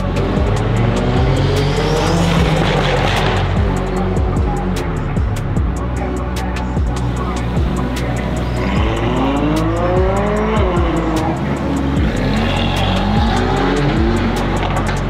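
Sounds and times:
car engine revving hard: 0.0 - 4.8, 7.0 - 15.0
background music with steady beat: 0.0 - 15.0.

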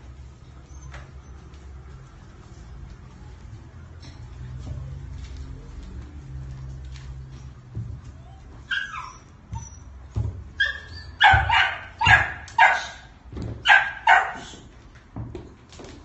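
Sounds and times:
puppies whining: 0.4 - 1.7, 8.0 - 13.0
puppies yapping: 8.2 - 14.6.

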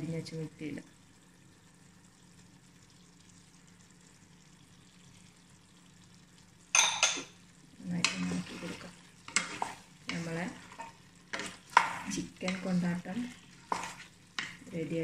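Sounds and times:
frying sizzle: 0.0 - 15.0
spoon stirring and scraping pan: 6.8 - 15.0.

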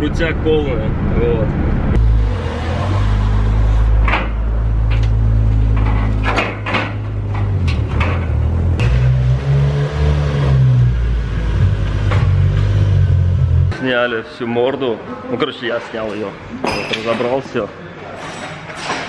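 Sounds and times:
car engine drone: 0.0 - 13.9
metal clunks on trailer ramps: 5.7 - 9.1.

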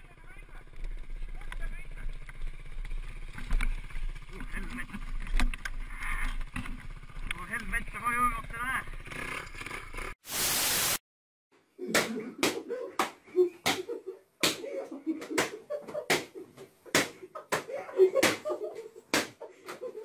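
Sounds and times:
steady hiss: 10.2 - 11.0
laughter: 11.8 - 20.0
hands slapping helmets: 11.9 - 20.0.

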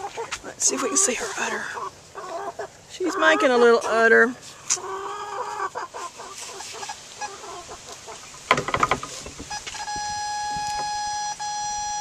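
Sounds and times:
short electronic blips: 9.5 - 12.0
steady electronic tone: 9.6 - 12.0.

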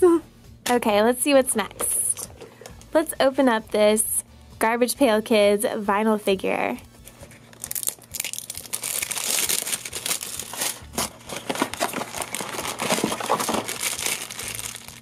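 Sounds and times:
plastic wrap and cardboard tearing: 7.3 - 15.0
foil bag crinkling: 7.5 - 15.0.

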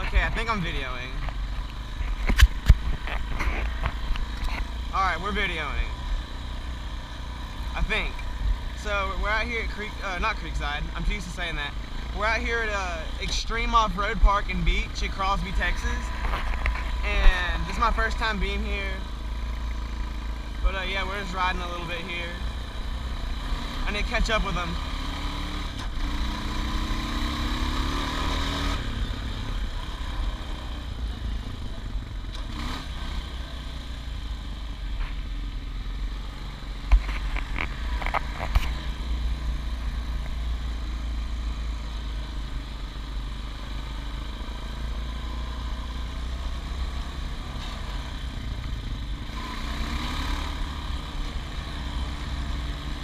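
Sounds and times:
atv engine revving: 0.0 - 53.0.

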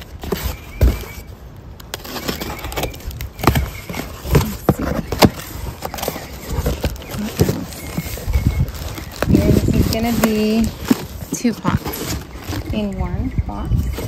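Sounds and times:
box cutter cutting cardboard: 1.9 - 12.6.

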